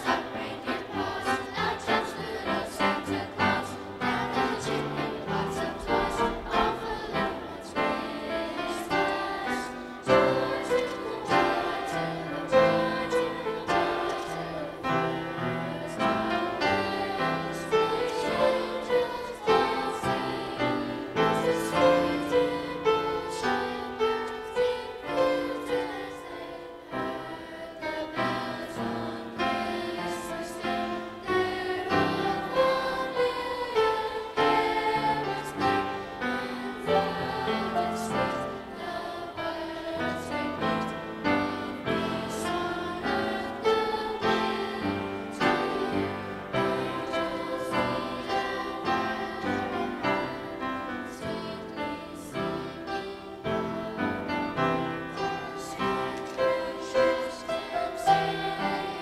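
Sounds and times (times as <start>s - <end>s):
choir singing: 0.0s - 59.0s
upright piano: 0.0s - 59.0s.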